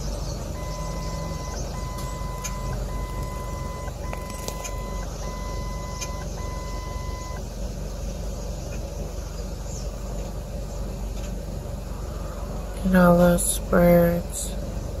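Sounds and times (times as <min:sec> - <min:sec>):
vehicle rumble: 0:00.0 - 0:15.0
long electronic beeps: 0:00.6 - 0:07.4.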